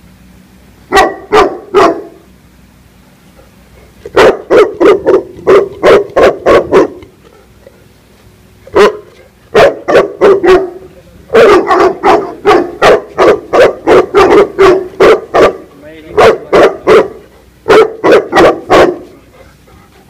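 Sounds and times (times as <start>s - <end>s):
dog barking aggressively: 0.9s - 2.2s, 4.0s - 7.2s, 8.6s - 19.5s.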